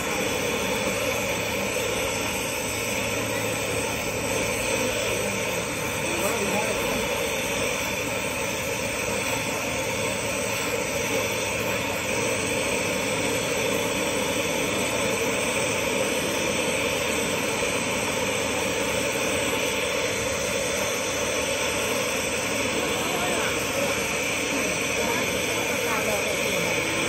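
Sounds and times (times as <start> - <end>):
torch gas rushing: 0.0 - 27.0.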